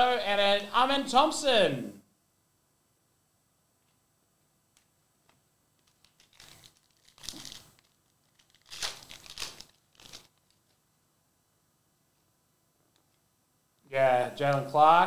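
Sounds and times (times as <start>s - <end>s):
wrapper crinkling and tearing: 5.8s - 10.8s.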